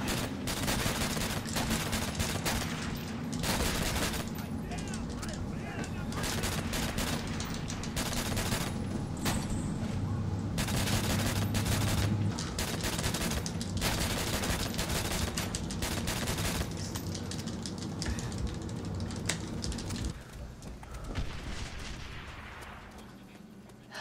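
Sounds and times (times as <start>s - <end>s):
video game gunfire: 0.0s - 4.4s, 6.1s - 9.5s, 10.6s - 16.9s.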